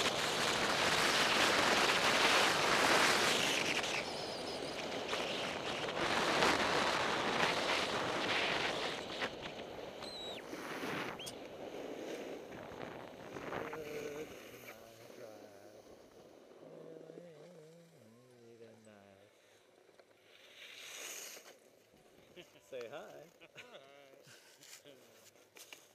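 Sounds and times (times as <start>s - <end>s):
wind on microphone: 0.0s - 18.0s
skis carving over snow: 0.0s - 18.5s, 19.4s - 23.3s, 24.2s - 25.9s.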